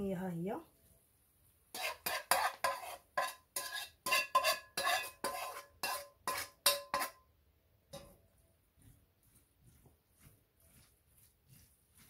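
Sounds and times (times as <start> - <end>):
utensil scraping metal frying pan: 1.7 - 7.3.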